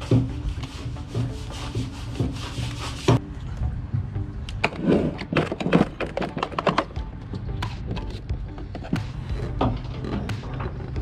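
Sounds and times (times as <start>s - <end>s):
scraping and rubbing: 0.0s - 3.2s, 7.9s - 11.0s
background music: 0.0s - 11.0s.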